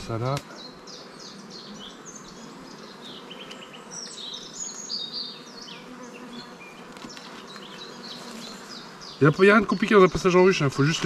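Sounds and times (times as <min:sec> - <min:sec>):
birds chirping: 0:00.0 - 0:11.0
honeybees buzzing: 0:00.0 - 0:11.0.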